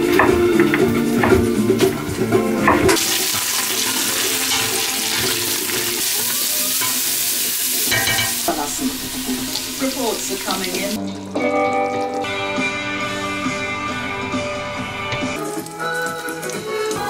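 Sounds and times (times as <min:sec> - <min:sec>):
guitar music: 0:00.0 - 0:17.0
vegetables sizzling in a pot: 0:02.9 - 0:11.5, 0:15.3 - 0:17.0.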